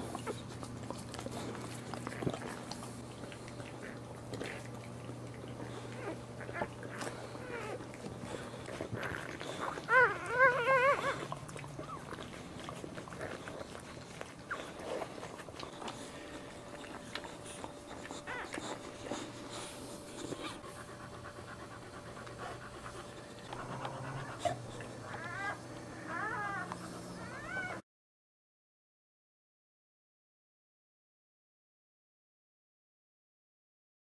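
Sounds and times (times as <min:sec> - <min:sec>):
dog panting softly: 0:00.0 - 0:27.8
puppy squealing: 0:06.0 - 0:07.8, 0:09.0 - 0:12.2, 0:17.9 - 0:19.2, 0:23.5 - 0:27.8.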